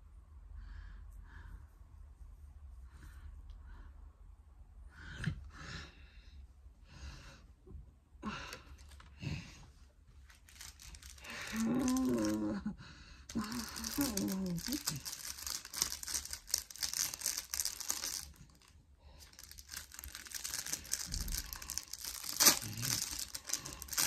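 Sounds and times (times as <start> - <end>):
person breathing and sighing: 4.8 - 9.8, 10.9 - 15.5, 19.0 - 24.0
sticker packet rustling: 10.3 - 12.4, 13.3 - 24.0
person humming: 11.4 - 12.8, 13.4 - 15.0.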